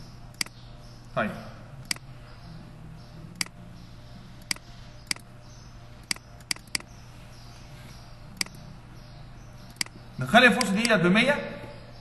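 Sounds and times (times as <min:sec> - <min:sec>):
computer mouse clicking: 0:03.3 - 0:03.6, 0:04.4 - 0:05.3, 0:06.0 - 0:06.9, 0:08.4 - 0:08.6, 0:09.7 - 0:10.0.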